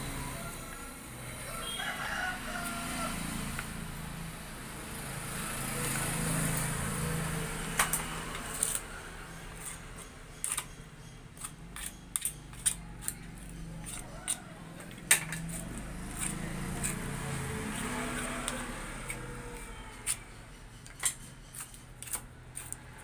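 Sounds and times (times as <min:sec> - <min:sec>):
rooster crowing: 0:00.1 - 0:03.6, 0:13.8 - 0:14.8
knife cutting bones: 0:09.6 - 0:10.8, 0:11.4 - 0:23.0.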